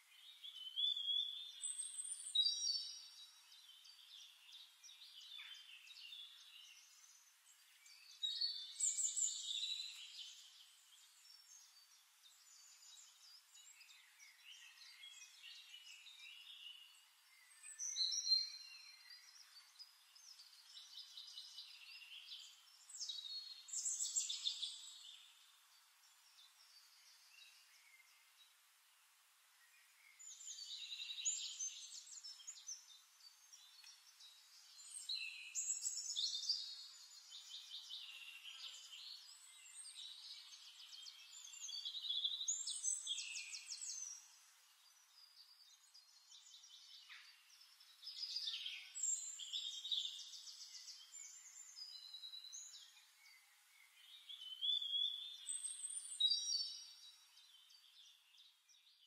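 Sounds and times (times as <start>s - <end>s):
songbirds trilling and chirping: 0.0s - 59.0s.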